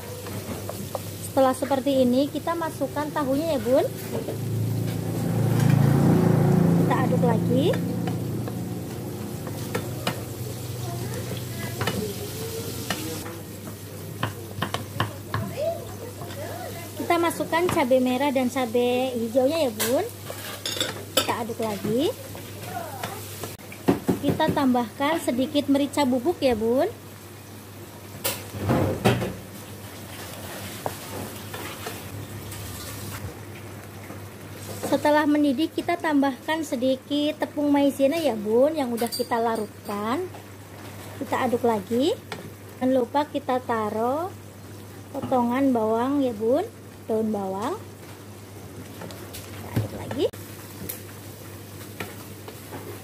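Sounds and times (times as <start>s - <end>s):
spatula stirring food: 0.0s - 5.1s, 7.7s - 25.6s, 29.6s - 33.2s
food sizzling in frying pan: 0.0s - 53.0s
spatula tapping pan: 7.7s - 10.3s, 11.7s - 12.1s, 12.8s - 16.4s
spatula scraping a wok: 19.8s - 21.0s.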